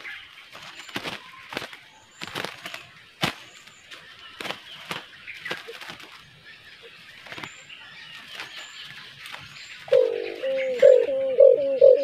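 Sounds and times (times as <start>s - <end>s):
dove cooing: 9.9s - 12.0s.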